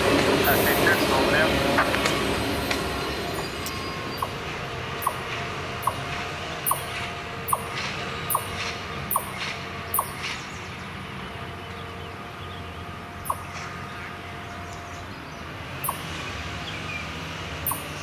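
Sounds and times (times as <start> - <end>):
train wheels clicking on track: 0.0 - 10.6, 15.8 - 16.1, 17.6 - 18.0
train rumbling past: 0.0 - 18.0.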